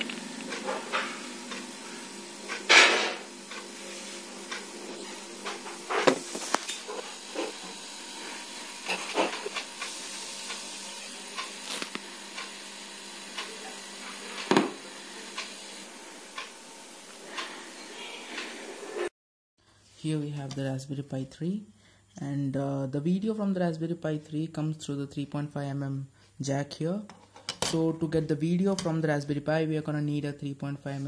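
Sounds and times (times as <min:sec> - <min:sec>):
steady hiss: 0:00.0 - 0:19.1.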